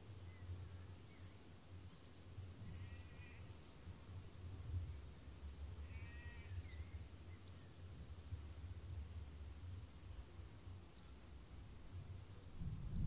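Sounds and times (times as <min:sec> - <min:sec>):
low steady rumble: 0:00.0 - 0:13.0
short bird calls: 0:05.8 - 0:06.6.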